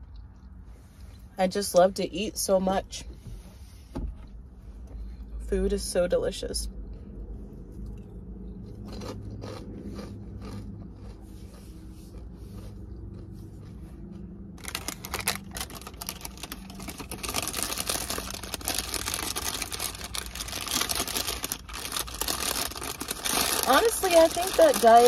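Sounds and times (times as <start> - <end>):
low steady hum: 0.0 - 25.0
chewing: 6.8 - 24.8
paper bag crinkling: 14.6 - 25.0.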